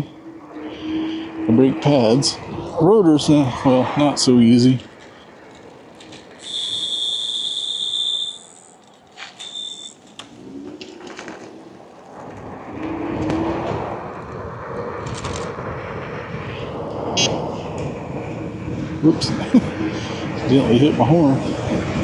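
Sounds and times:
wind and road noise: 0:00.0 - 0:22.0
scooter horn beeping: 0:06.4 - 0:08.6.

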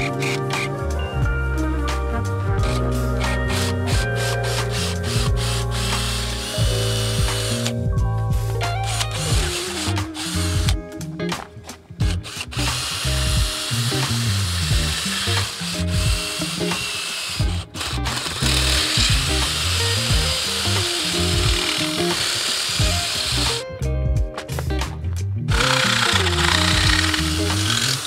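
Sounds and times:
power drill grinding ceramic: 0:00.0 - 0:00.7, 0:02.6 - 0:07.7, 0:08.8 - 0:10.8, 0:12.0 - 0:23.6, 0:25.5 - 0:28.0
background music: 0:00.0 - 0:28.0.

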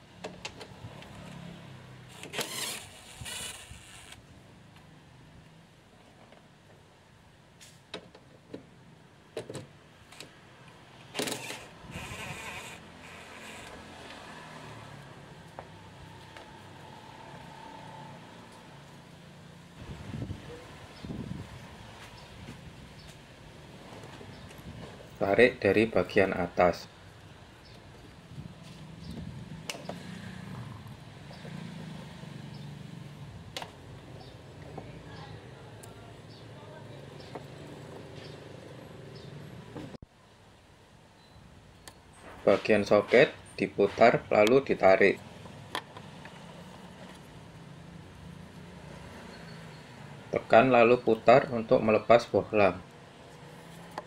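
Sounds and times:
impact driver whirring: 0:02.1 - 0:04.2, 0:11.2 - 0:13.8.

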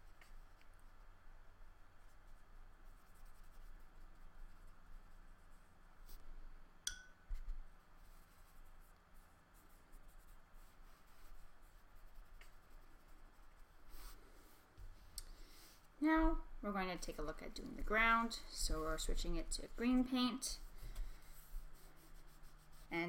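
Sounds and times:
paintbrush strokes on paper: 0:00.0 - 0:06.6, 0:07.2 - 0:23.0
sharp tap with ring: 0:06.9 - 0:07.2.

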